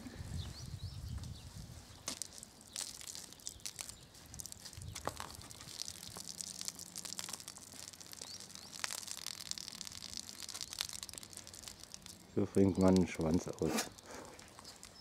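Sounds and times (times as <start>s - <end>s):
foam crackling: 1.6s - 15.0s
wet soapy squelching: 2.0s - 15.0s
bird chirping: 7.8s - 15.0s.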